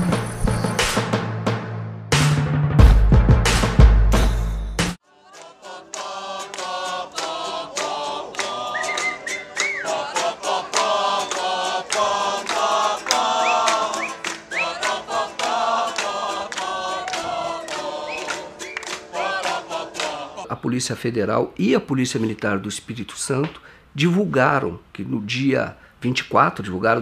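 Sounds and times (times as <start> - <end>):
steady percussive beat: 0.8 - 5.0
voices singing chant-like chorus: 5.0 - 20.5.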